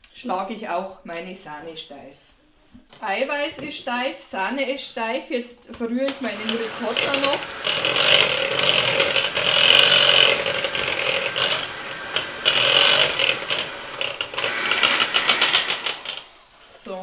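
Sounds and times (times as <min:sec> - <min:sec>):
electric hand mixer motor hum: 0:06.1 - 0:16.8.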